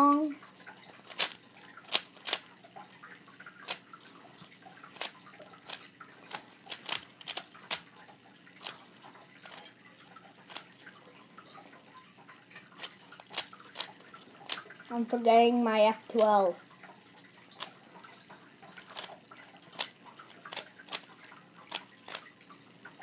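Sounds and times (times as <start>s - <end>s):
speed cube layers clicking: 1.0s - 2.5s, 3.6s - 4.2s, 4.8s - 8.0s, 8.6s - 9.7s, 10.4s - 10.7s, 12.8s - 14.6s, 17.6s - 17.8s, 18.8s - 22.3s.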